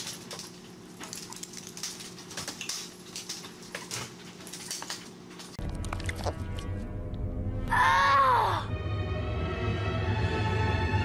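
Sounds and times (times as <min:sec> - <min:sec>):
dog claws clicking on tile: 0:00.0 - 0:05.5.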